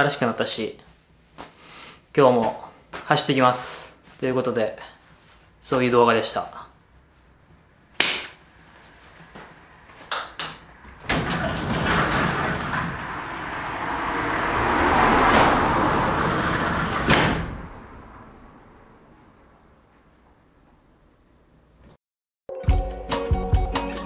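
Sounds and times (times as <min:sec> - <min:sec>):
outdoor street noise: 0:08.6 - 0:19.9
sliding door opening: 0:10.1 - 0:18.3
door shutting with a knock: 0:15.2 - 0:17.8.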